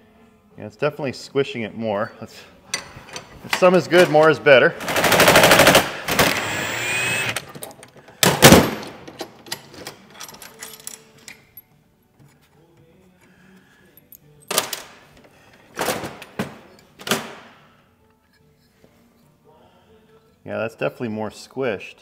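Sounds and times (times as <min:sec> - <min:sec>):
impact wrench bursts: 0:04.8 - 0:07.5.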